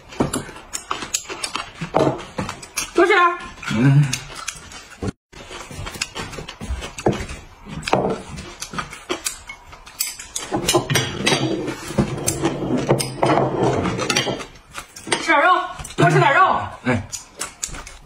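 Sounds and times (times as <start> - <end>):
chopsticks clicking on porcelain: 17.1 - 18.0.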